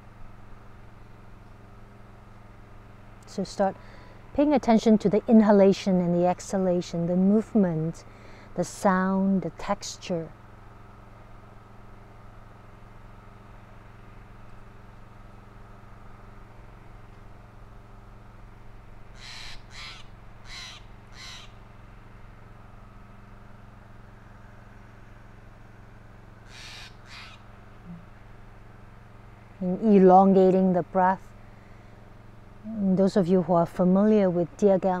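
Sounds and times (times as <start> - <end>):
steady low hum: 0.0 - 35.0
crow cawing: 19.2 - 21.6, 26.5 - 27.4.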